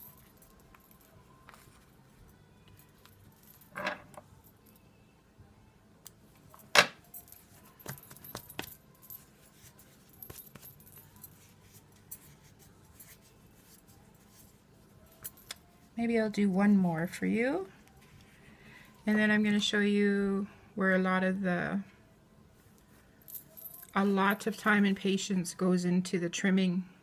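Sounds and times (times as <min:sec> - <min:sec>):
metal bangles clinking: 0:00.0 - 0:04.8, 0:06.1 - 0:16.0, 0:23.2 - 0:24.8.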